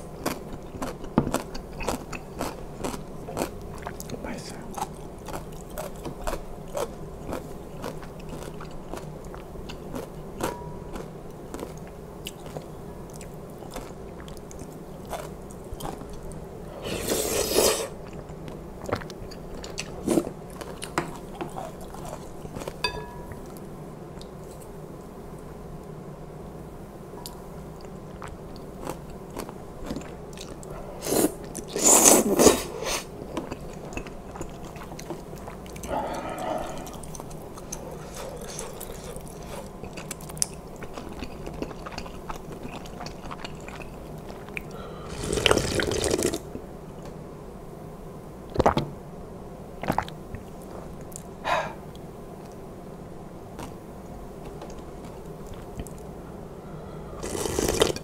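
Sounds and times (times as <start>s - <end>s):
chewing noodle soup: 0.0s - 23.6s, 27.2s - 46.6s, 57.2s - 58.0s.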